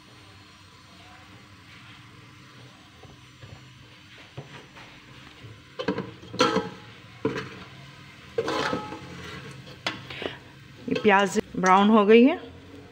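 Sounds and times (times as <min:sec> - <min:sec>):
faint sizzle: 0:00.0 - 0:12.9
spatula scraping a steel pot: 0:08.4 - 0:09.9.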